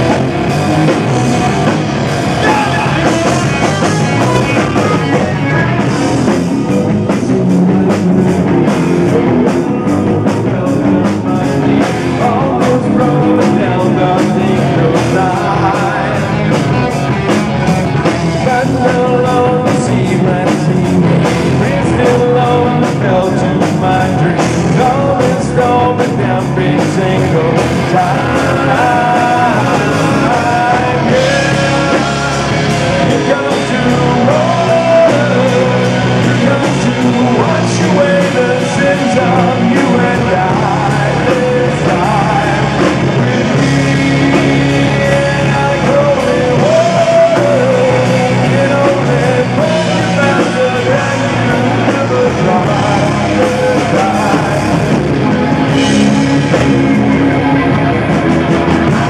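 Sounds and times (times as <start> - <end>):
live rock band playing: 0.0 - 59.0
man singing: 0.0 - 59.0.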